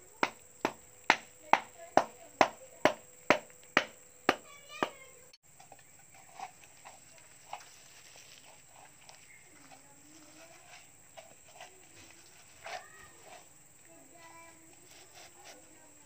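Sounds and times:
sharp knocks: 0.2s - 5.0s
faint ticks and rustles: 4.4s - 16.0s.

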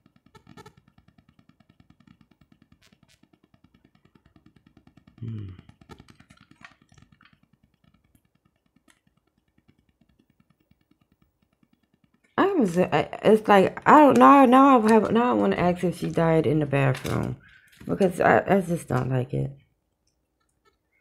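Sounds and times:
cards ticking on a table: 0.0s - 12.8s.

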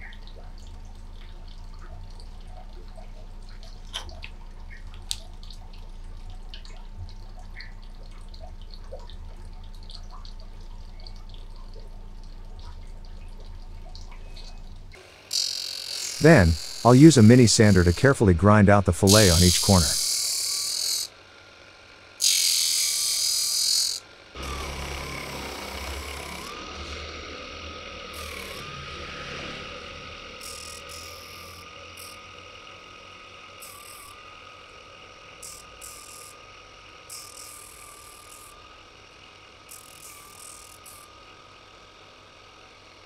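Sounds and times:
disc sander whining: 15.0s - 41.8s
acrylic grinding against sanding disc: 15.2s - 18.2s, 19.1s - 21.1s, 22.2s - 32.3s, 33.5s - 34.2s, 35.4s - 38.7s, 39.6s - 41.2s.

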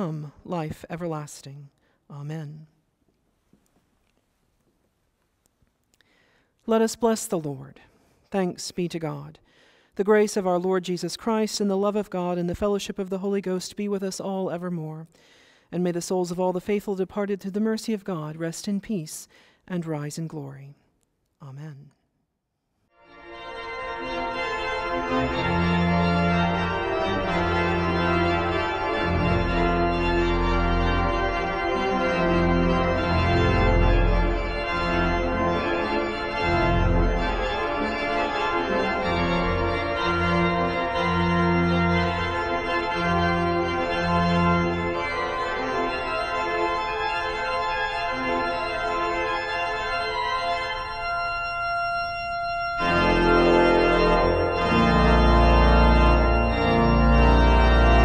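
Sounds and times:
church organ playing chords: 23.0s - 58.0s.

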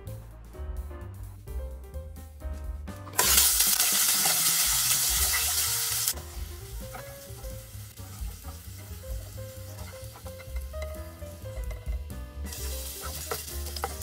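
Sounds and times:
background music: 0.0s - 14.0s
vegetables sizzling in hot oil: 3.2s - 14.0s
wooden spatula stirring: 6.6s - 14.0s.

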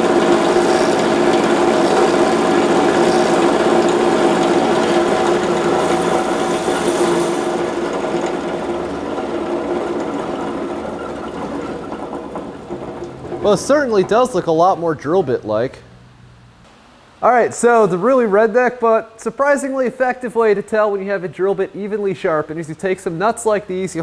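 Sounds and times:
bench grinder motor hum: 0.0s - 13.3s
drill bit grinding on wheel: 0.3s - 11.4s.

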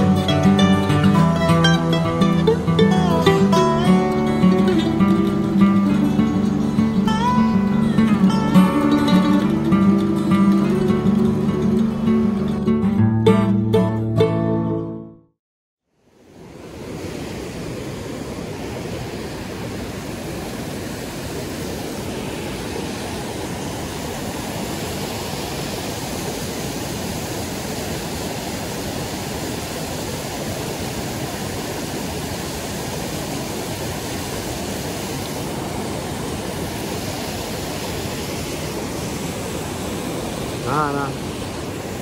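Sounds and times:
river rapids rushing: 0.0s - 12.8s, 16.2s - 42.0s.

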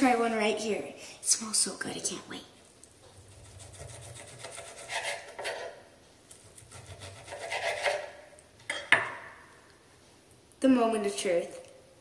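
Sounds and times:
knife sawing through steak: 3.3s - 5.8s, 6.6s - 8.1s.

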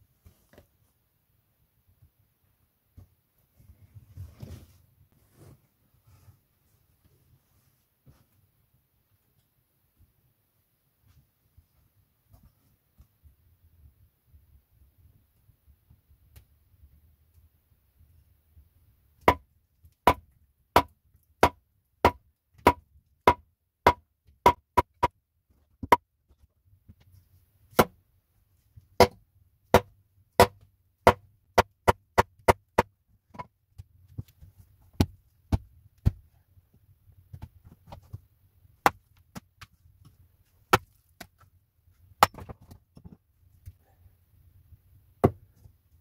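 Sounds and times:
hatchet chopping wood: 20.0s - 25.1s, 29.0s - 33.5s, 42.2s - 42.7s.

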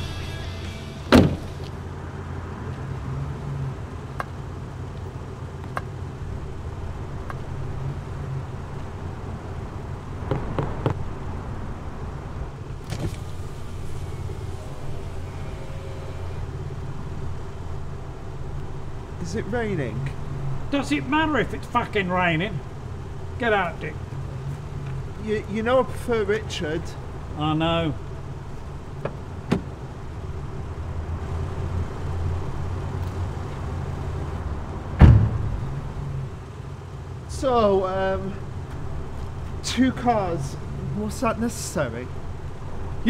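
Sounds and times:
electric window motor whirring: 0.0s - 1.7s, 12.8s - 18.9s
car engine idling: 0.0s - 43.0s
car door opening knock: 1.1s - 1.5s.

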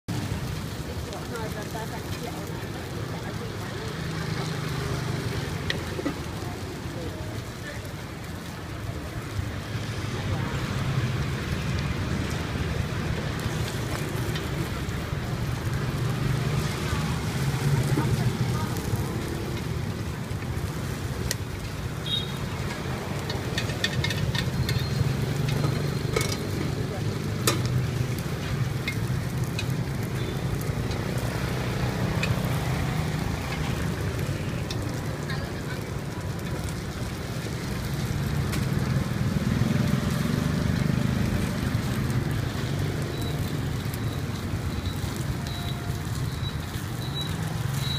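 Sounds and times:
street traffic rumble: 0.0s - 47.9s
cakes frying hiss: 0.1s - 47.9s.

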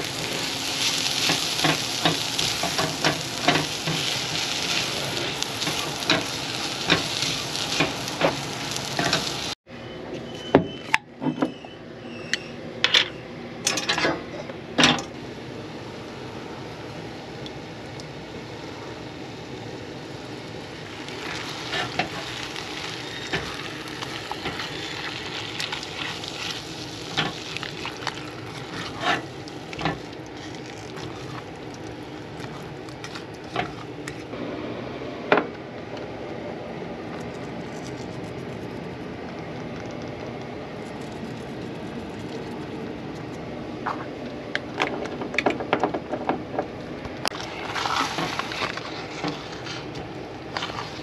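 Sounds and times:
food sizzling in a saucepan: 0.0s - 9.6s, 18.4s - 33.9s, 47.3s - 51.0s.

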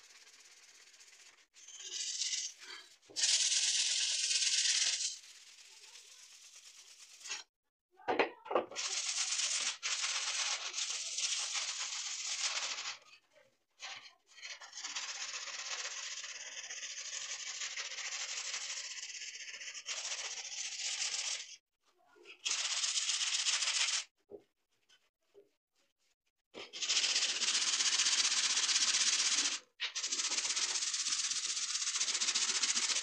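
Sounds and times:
brick scraping steel saw blade: 0.6s - 7.5s.

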